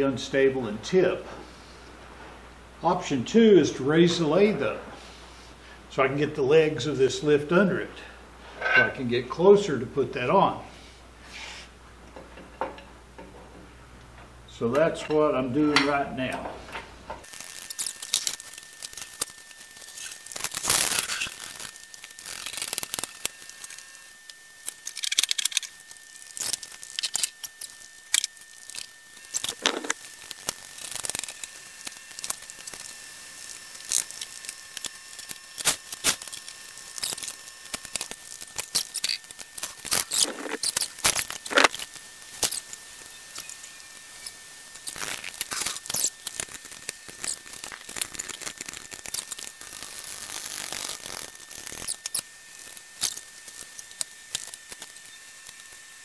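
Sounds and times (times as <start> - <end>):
faint high whine: 14.4 - 56.0.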